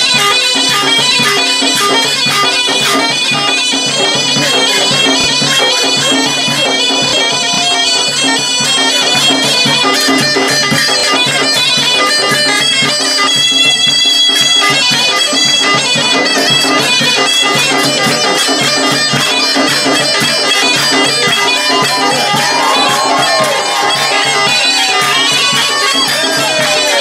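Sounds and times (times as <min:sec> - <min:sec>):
reedy wind instrument melody: 0:00.0 - 0:27.0
large drum beating: 0:17.5 - 0:27.0.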